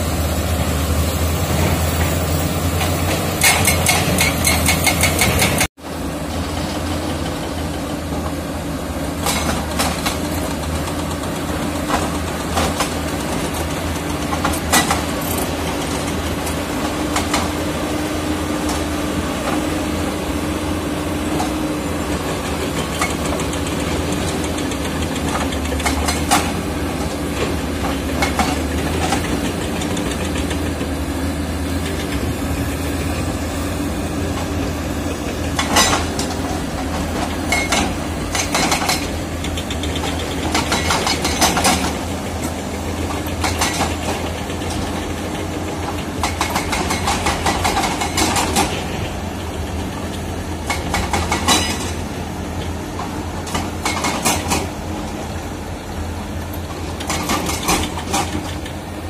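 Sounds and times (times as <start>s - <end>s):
bulldozer diesel engine running: 0.0s - 59.0s
sharp metal clanks: 2.8s - 5.7s.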